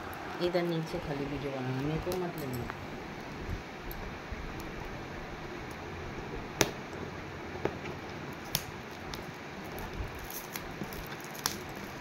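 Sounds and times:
plastic gift-wrap crinkling: 8.4 - 12.0.

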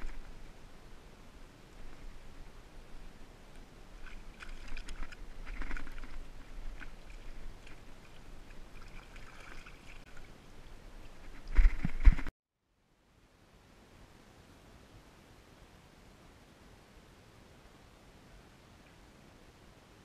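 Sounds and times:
light water splashing: 3.5 - 12.3.

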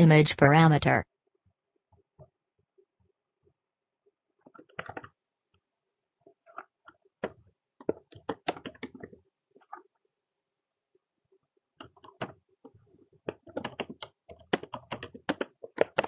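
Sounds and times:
computer keyboard typing: 4.4 - 5.2, 6.5 - 9.8, 11.8 - 16.0.

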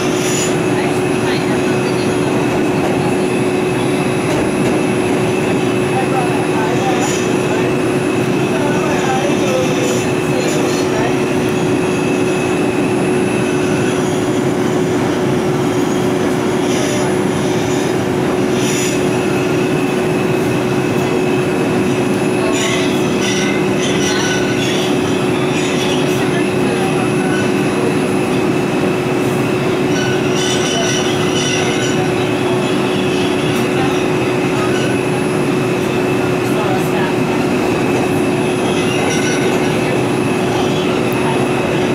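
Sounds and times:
wheels roaring on rail: 0.0 - 41.9
high wheel squeals: 29.8 - 35.2.

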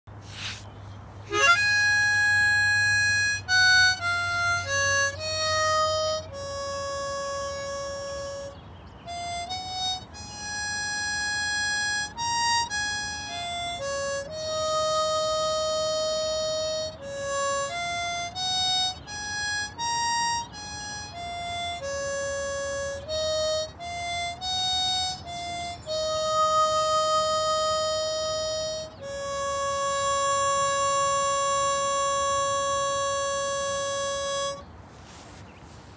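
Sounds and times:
harmonica melody: 0.3 - 35.1.

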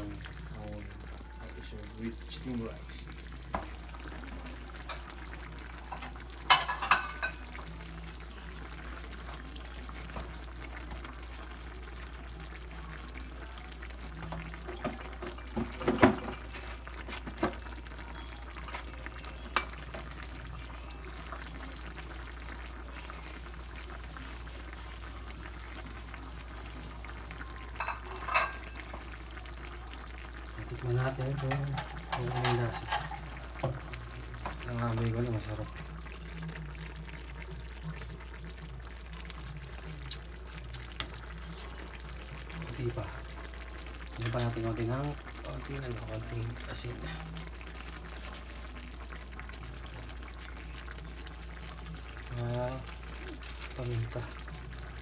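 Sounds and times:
stew simmering in a frying pan: 0.0 - 55.0.

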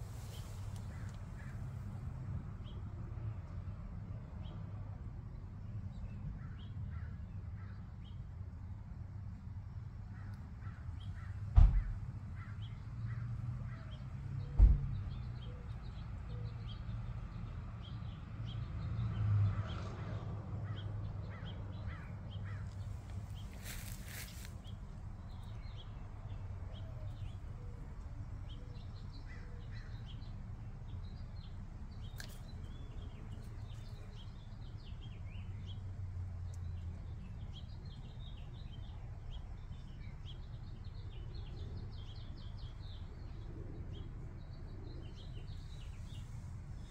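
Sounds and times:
rustling hiss: 0.0 - 1.3
low outdoor rumble: 0.0 - 46.9
birds chirping: 20.7 - 46.9.

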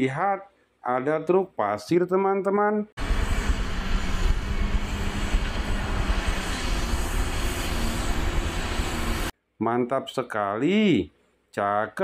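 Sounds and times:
truck engine rumbling: 3.0 - 9.3.

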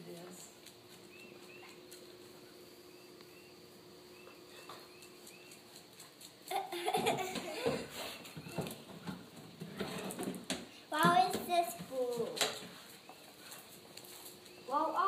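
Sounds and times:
faint bird chirps: 1.1 - 1.9, 2.8 - 5.7
person laughing: 6.5 - 8.0.

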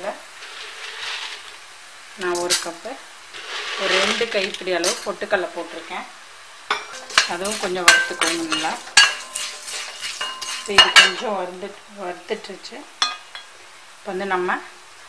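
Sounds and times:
food frying in oil: 0.0 - 15.0
metal spoon scraping metal pan: 3.4 - 5.2, 6.7 - 11.3.

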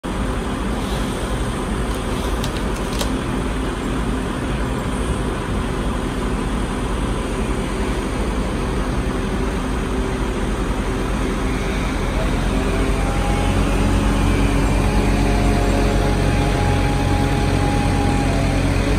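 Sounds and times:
heavy engine revving: 10.4 - 18.9.

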